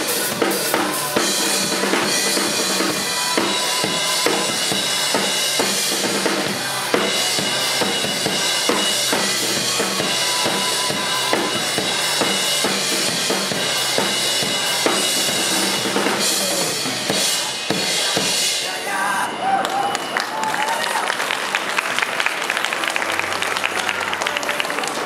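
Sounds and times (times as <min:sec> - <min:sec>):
pop-rock backing track: 0:00.0 - 0:18.6
crash and ride cymbals: 0:00.0 - 0:18.7.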